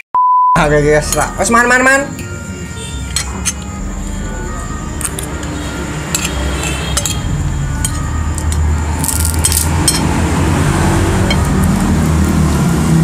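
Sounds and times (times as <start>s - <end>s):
spoons clinking on plates: 3.0s - 3.7s, 5.0s - 10.2s.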